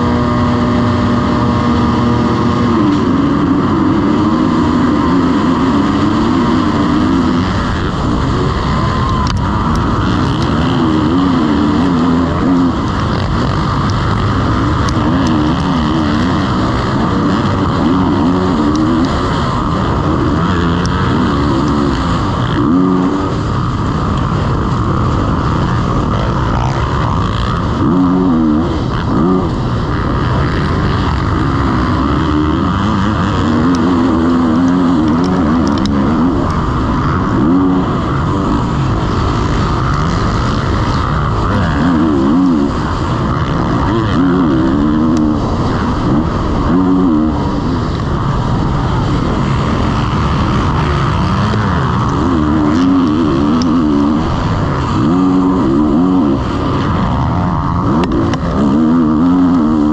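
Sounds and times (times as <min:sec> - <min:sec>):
motocross bike engine revving: 0:00.0 - 0:59.9.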